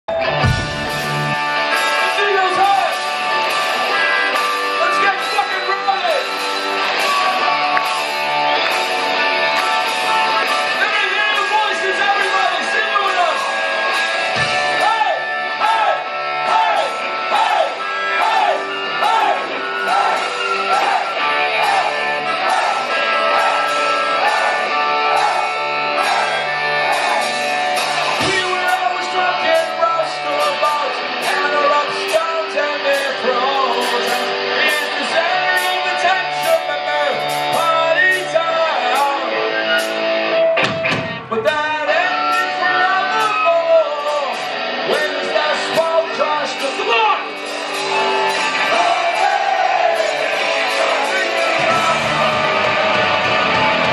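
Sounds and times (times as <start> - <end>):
drums: 0.0 - 53.9
electric guitars: 0.1 - 53.9
man singing into a microphone: 28.2 - 39.4, 41.3 - 47.2, 50.6 - 52.9.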